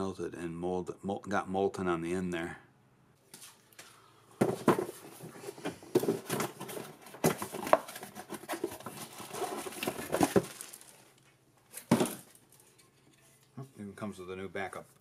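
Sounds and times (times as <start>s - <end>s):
cardboard box scraping and tapping: 4.4s - 10.5s
plastic bag crinkling: 6.0s - 12.8s.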